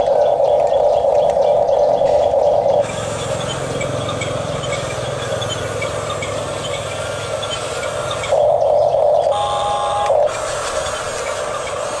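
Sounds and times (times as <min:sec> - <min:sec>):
electric motors whining: 0:00.0 - 0:12.0
higher whine: 0:00.0 - 0:12.0.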